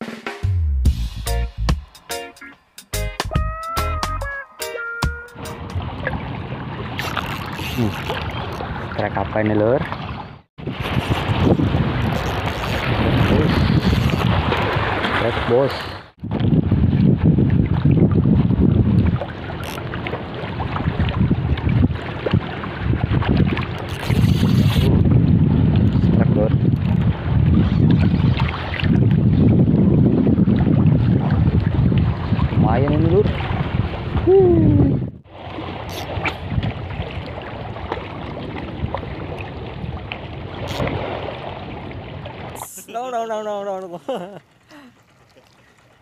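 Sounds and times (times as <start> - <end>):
sea water lapping and splashing: 5.2 - 46.0
wind buffeting microphone: 5.4 - 15.5, 16.1 - 42.6.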